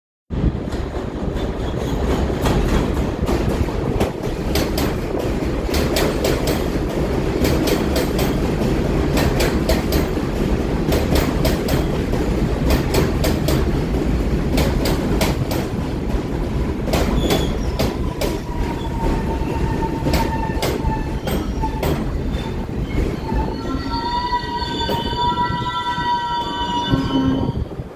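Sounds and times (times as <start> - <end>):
subway train rumbling: 0.3 - 27.9
high brake squeal: 17.2 - 27.7.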